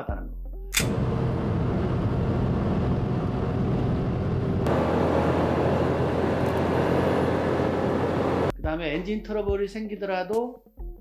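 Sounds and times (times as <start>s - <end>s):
petrol car engine running: 0.8s - 8.5s
diesel car engine running: 0.9s - 8.5s.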